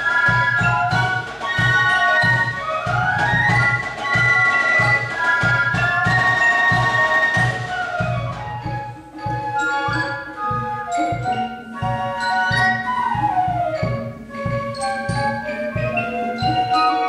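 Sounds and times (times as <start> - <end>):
steady drum beat: 0.0 - 17.0
fifes playing in harmony: 8.9 - 17.0.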